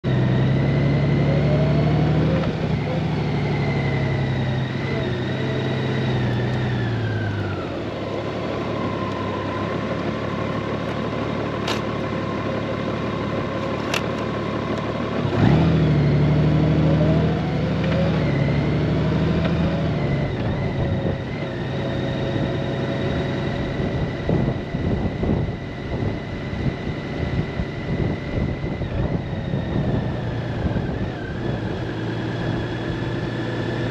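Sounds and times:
motorcycle engine running: 0:00.0 - 0:33.9
wind and road noise: 0:00.0 - 0:33.9
wind buffeting microphone: 0:23.8 - 0:31.9.

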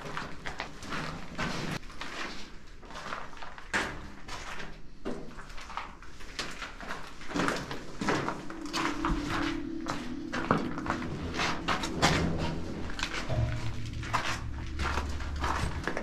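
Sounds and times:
steady low hum: 0:08.0 - 0:16.0.

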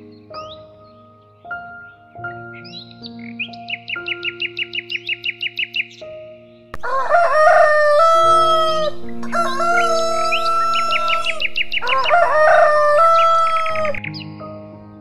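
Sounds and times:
rooster crowing: 0:06.8 - 0:14.0.

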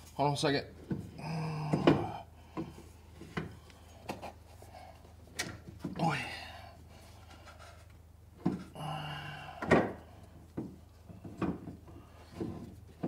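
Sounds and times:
dull metal knocks and clunks: 0:09.6 - 0:13.0.

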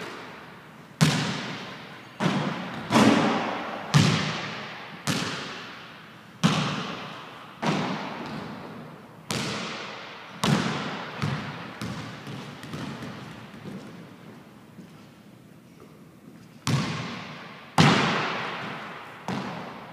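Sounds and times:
basketball bouncing on hardwood floor: 0:01.0 - 0:01.6, 0:09.3 - 0:14.0, 0:16.6 - 0:17.2, 0:17.8 - 0:19.8.

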